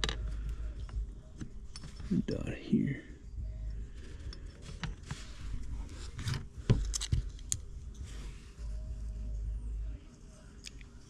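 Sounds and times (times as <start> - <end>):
metal gears clicking and scraping: 4.2 - 8.1.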